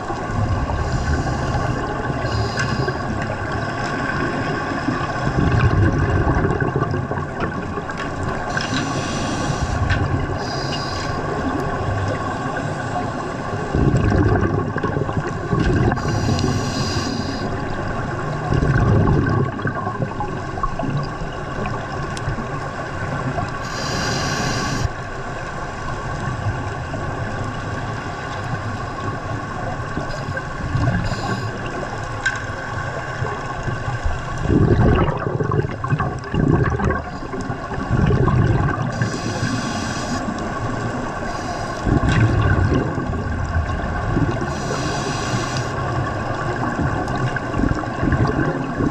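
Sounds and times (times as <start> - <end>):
exhaled bubbles underwater: 0.0 - 48.9
steady underwater hum: 0.0 - 48.9
regulator inhale hiss: 0.7 - 3.3, 8.5 - 11.5, 16.0 - 17.7, 23.6 - 25.0, 31.0 - 31.7, 38.9 - 42.0, 44.5 - 45.9.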